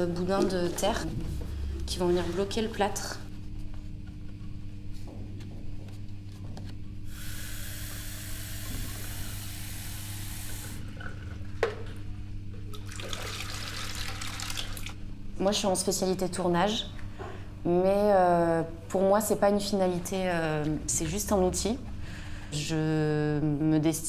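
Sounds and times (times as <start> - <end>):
tap water splashing into jug: 12.7 - 15.0.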